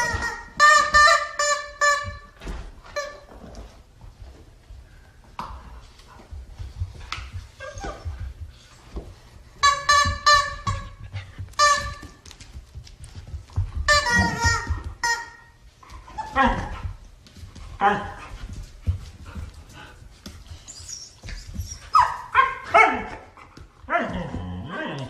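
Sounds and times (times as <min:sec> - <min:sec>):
dogs scuffling: 0:00.0 - 0:25.0
husky yipping: 0:20.7 - 0:23.3.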